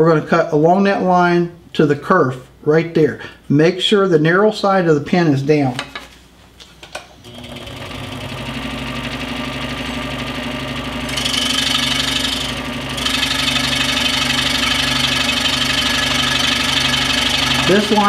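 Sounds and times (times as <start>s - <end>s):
scroll saw motor hum: 7.3s - 18.0s
saw blade cutting wood: 11.1s - 18.0s.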